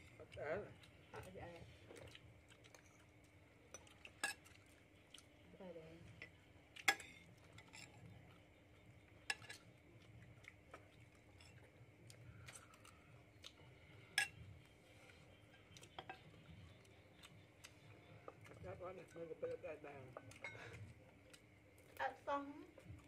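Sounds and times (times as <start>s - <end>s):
spoons clinking on plates: 3.7s - 4.6s, 6.2s - 8.0s, 9.2s - 9.7s, 14.1s - 14.4s, 15.9s - 16.3s, 20.2s - 20.8s.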